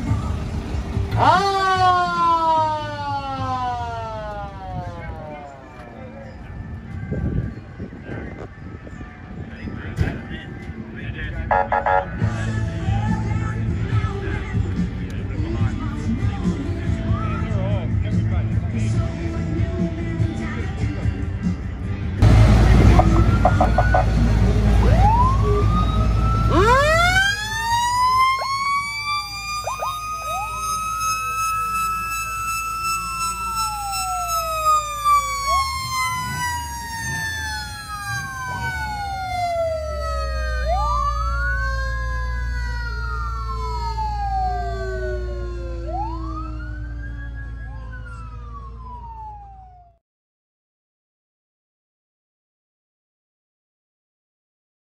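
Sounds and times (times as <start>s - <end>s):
wailing siren: 1.1s - 9.5s, 11.5s - 12.3s, 22.7s - 50.0s.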